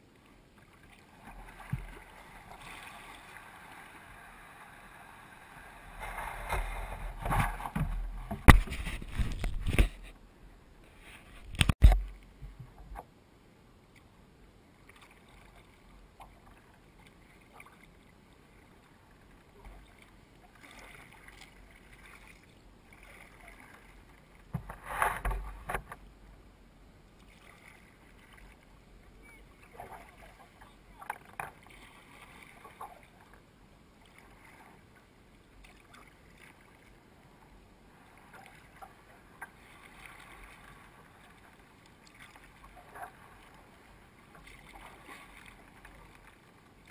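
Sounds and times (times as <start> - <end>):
kayak paddle splashes: 14.8 - 26.0, 27.2 - 33.4, 35.5 - 37.3, 37.9 - 46.9.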